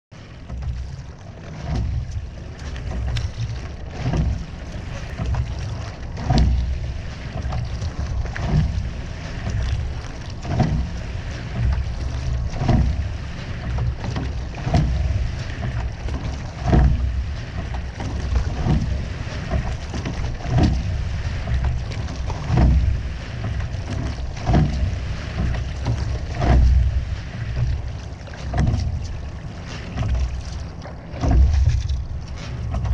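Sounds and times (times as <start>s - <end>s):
water running past hull: 0.1s - 32.9s
wind rumbling on microphone: 0.2s - 32.9s
oar knock: 0.5s - 32.9s.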